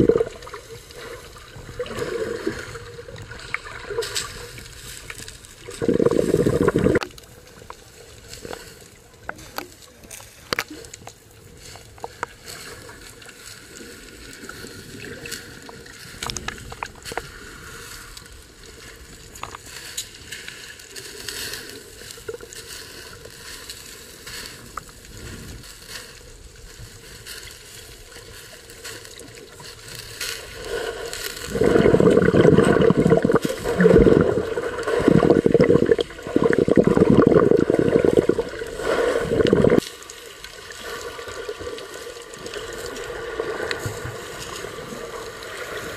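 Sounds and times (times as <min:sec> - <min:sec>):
faint clicks and crackles: 0:00.0 - 0:45.9
muffled water rushing and sloshing: 0:00.0 - 0:45.9
muffled underwater sound: 0:05.3 - 0:17.9, 0:24.2 - 0:45.9.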